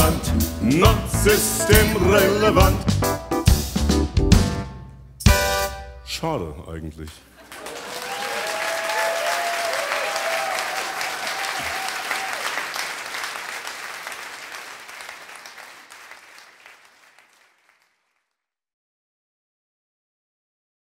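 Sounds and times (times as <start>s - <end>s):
audience applauding: 7.2s - 18.2s
people whooping: 7.6s - 12.9s.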